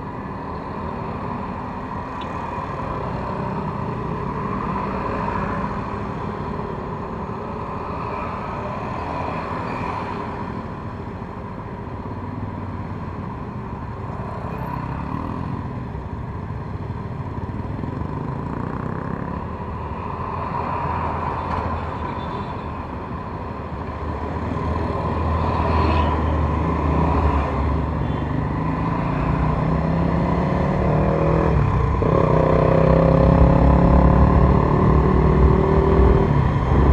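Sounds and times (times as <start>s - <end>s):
surrounding traffic: 0.0s - 36.9s.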